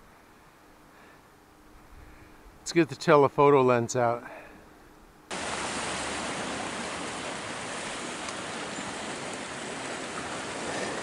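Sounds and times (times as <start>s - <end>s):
ocean surf rushing against rocks: 5.3s - 11.0s.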